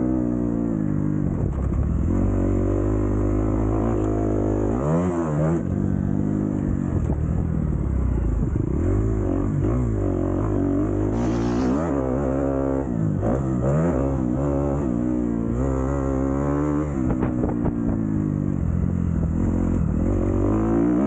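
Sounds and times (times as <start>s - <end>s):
motocross bike engine revving: 10.6s - 14.9s.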